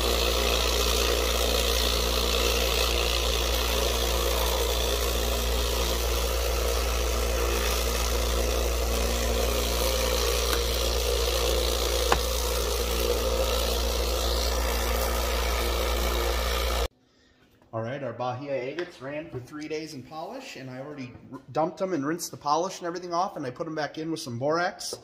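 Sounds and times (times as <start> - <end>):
rock tumbler humming and rattling: 0.0 - 16.9.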